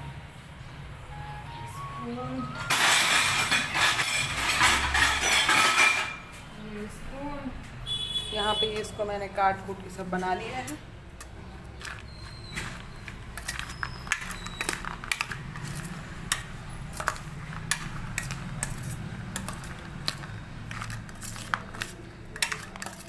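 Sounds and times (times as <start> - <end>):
spoon clinking in metal bowl: 19.4 - 23.0.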